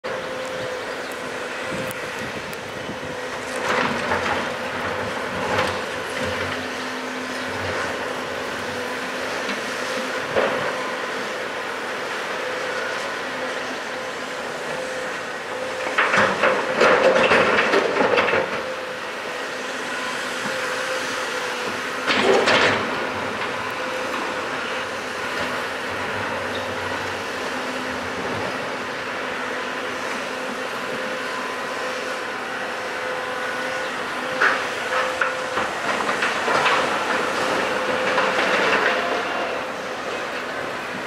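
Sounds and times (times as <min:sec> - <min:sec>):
diesel engines running with whine: 0:00.0 - 0:41.0.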